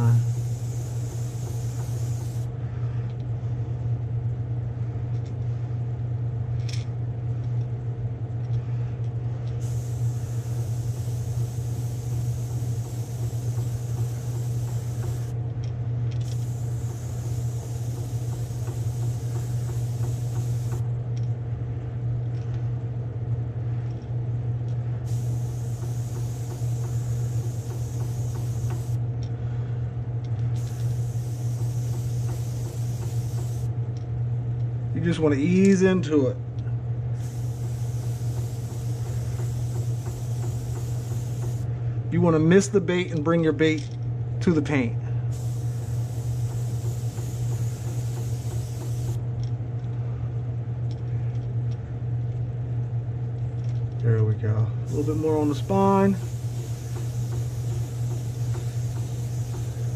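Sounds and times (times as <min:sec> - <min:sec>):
airbrush spraying hiss: 0:00.0 - 0:02.5, 0:09.6 - 0:15.4, 0:16.2 - 0:20.8, 0:25.1 - 0:29.0, 0:30.6 - 0:33.7, 0:37.2 - 0:41.7, 0:45.3 - 0:49.2, 0:54.9 - 0:59.9
low motor hum: 0:00.0 - 0:59.9.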